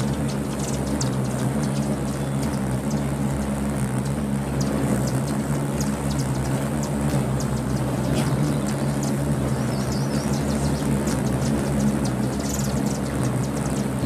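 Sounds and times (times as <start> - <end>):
high bird chip calls: 0.0 - 14.0
hummingbird wings humming: 0.0 - 14.0.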